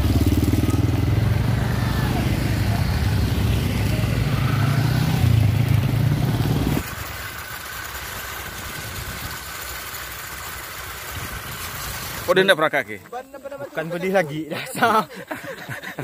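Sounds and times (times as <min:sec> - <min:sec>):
motorcycle engines droning: 0:00.0 - 0:12.4
motorcycle riding hum: 0:00.0 - 0:12.4.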